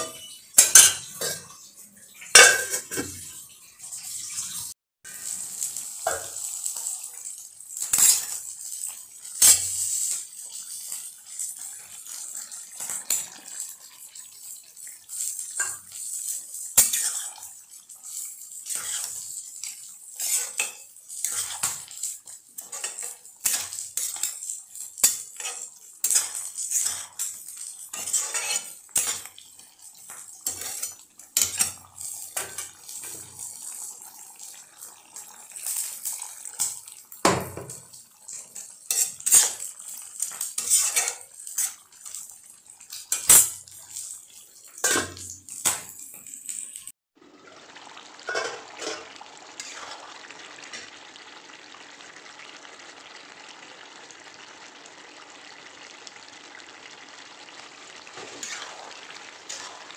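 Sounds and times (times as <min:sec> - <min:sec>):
spatula scraping a pan: 0:02.2 - 0:03.4, 0:07.8 - 0:08.4, 0:09.4 - 0:12.2, 0:15.1 - 0:33.8, 0:37.6 - 0:42.3, 0:42.9 - 0:46.7, 0:48.2 - 0:50.3, 0:58.2 - 0:59.9
steel pan lid handled: 0:02.4 - 0:03.2.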